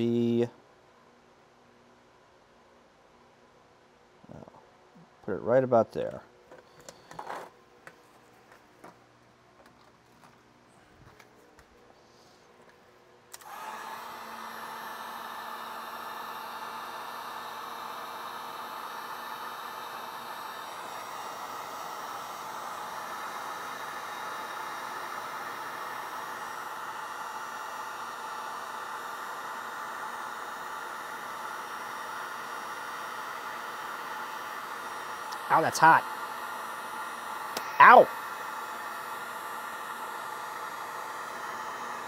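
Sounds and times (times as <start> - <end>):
heat gun fan blowing: 0.0 - 0.5, 4.3 - 9.0, 9.6 - 42.0.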